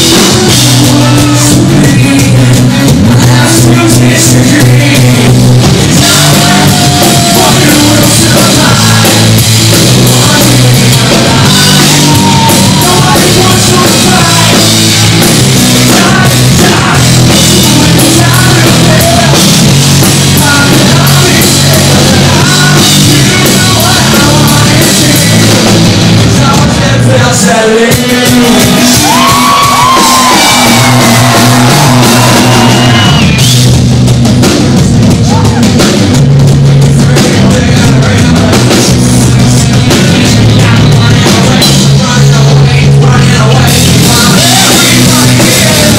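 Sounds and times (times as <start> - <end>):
person singing and shouting: 0.0 - 25.6, 26.4 - 33.4, 37.0 - 45.9
bass line: 0.0 - 45.9
electric guitar: 28.6 - 45.9.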